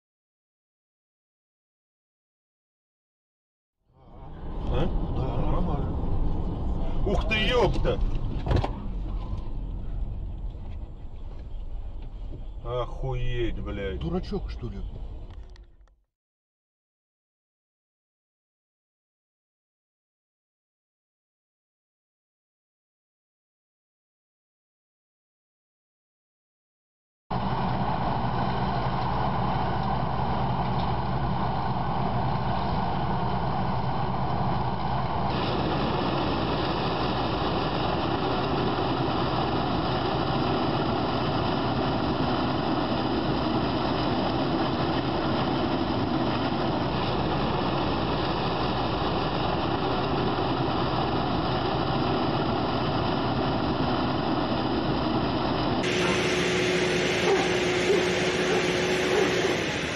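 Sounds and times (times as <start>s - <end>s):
tractor diesel engine droning: 4.0s - 15.3s, 27.3s - 59.9s
steady whine: 27.3s - 59.9s.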